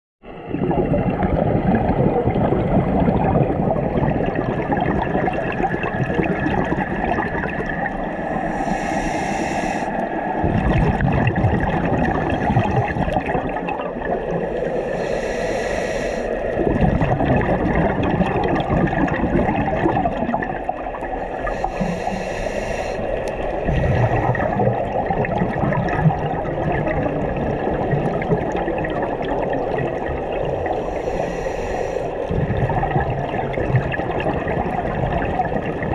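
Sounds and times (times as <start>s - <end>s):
underwater bubbling: 0.2s - 35.9s
diver breathing through regulator: 8.1s - 10.3s, 12.2s - 13.2s, 14.5s - 16.6s, 21.3s - 24.9s, 30.6s - 32.3s.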